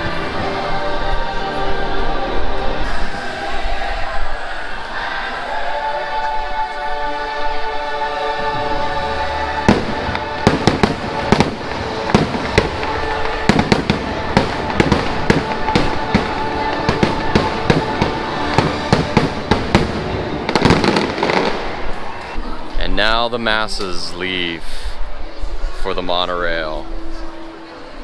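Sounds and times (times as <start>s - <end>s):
music: 0.0s - 28.0s
fireworks bangs and cracks: 9.7s - 22.4s.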